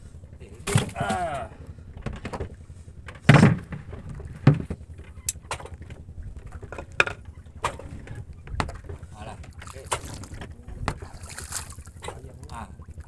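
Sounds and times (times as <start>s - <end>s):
knocks on boat hull: 3.1s - 4.8s, 8.4s - 10.1s, 10.7s - 11.1s.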